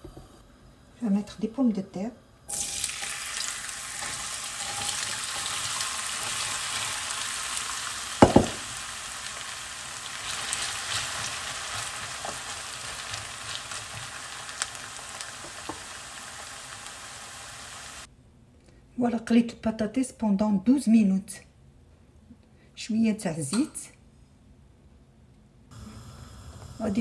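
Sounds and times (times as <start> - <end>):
potatoes sizzling in oil: 2.5 - 18.1, 25.8 - 27.0
spatula stirring: 4.0 - 6.9
loud double knock: 8.2 - 8.7.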